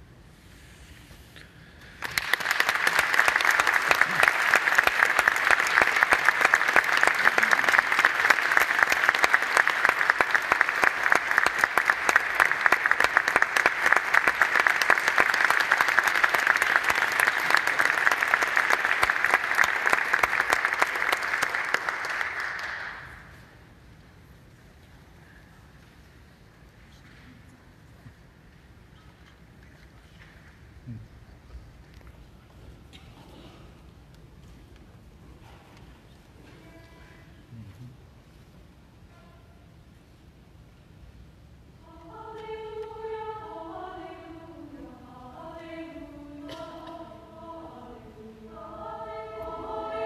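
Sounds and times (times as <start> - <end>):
audience applauding: 2.0 - 23.3.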